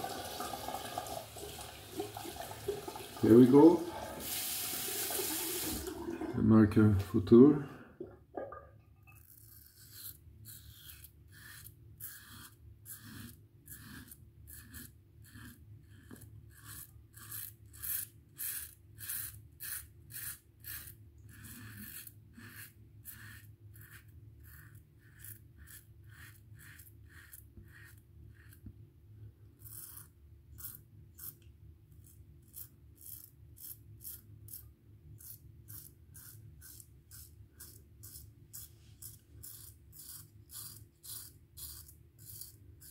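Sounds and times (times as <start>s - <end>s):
razor rasping on stubble: 9.2s - 28.7s, 29.6s - 42.9s.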